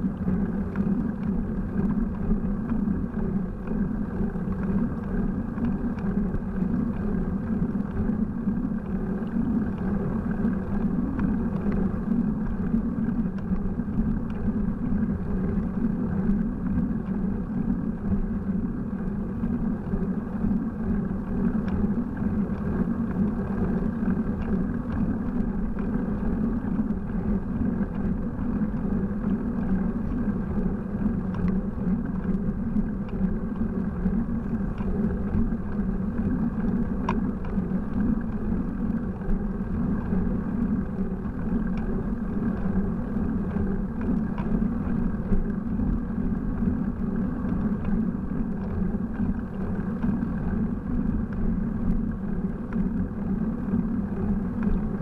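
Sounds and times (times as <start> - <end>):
faint ticks: 0.0 - 55.0.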